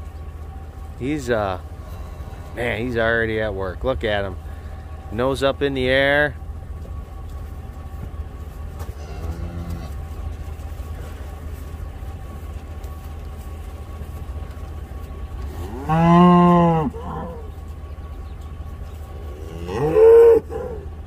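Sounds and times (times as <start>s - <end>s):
cattle mooing: 8.8s - 10.3s, 15.2s - 17.6s, 19.1s - 21.0s.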